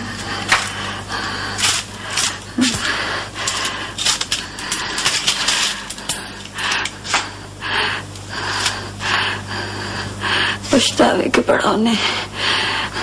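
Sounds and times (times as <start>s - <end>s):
low electrical hum: 0.0s - 13.0s.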